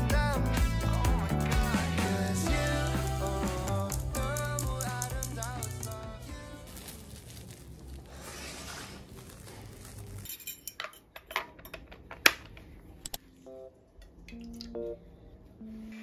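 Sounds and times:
background music: 0.0s - 7.1s.

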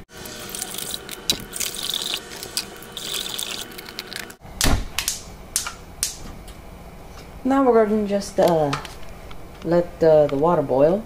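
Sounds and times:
water pouring into metal pot: 0.2s - 4.4s.

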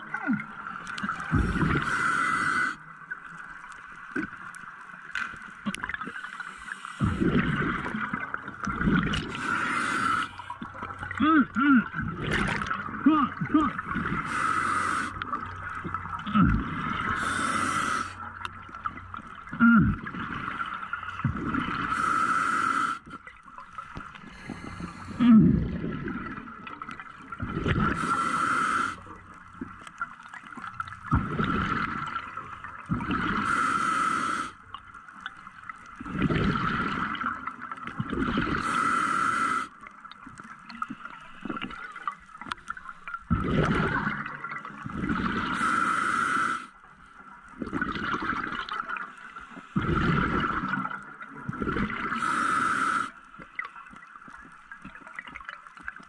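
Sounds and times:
regulator breathing hiss: 1.8s - 2.8s, 9.4s - 10.4s, 14.2s - 15.2s, 17.2s - 18.2s, 21.9s - 23.1s, 28.0s - 29.0s, 33.4s - 34.6s, 38.6s - 39.8s, 45.5s - 46.7s, 52.2s - 53.3s
exhaled bubbles rushing: 7.0s - 9.6s, 11.8s - 14.4s, 18.6s - 22.0s, 25.2s - 28.1s, 30.3s - 33.5s, 35.8s - 38.6s, 43.1s - 45.6s, 47.6s - 49.0s, 49.8s - 52.3s.

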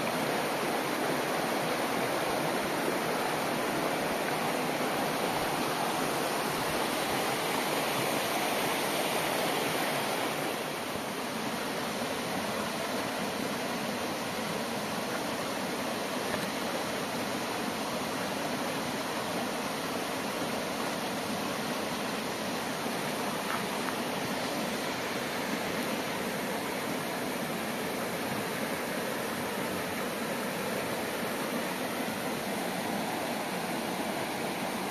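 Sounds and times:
stream rushing over rock: 0.0s - 34.9s.

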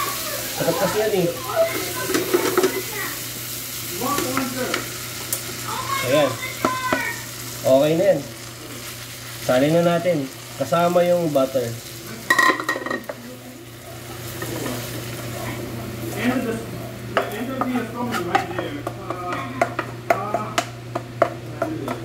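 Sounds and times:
butter sizzling: 0.0s - 22.0s
wooden spatula scraping a pan: 17.6s - 18.6s.

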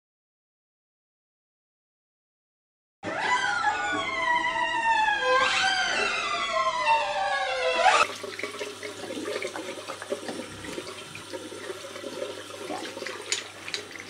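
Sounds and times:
tap running into sink: 8.0s - 14.0s.

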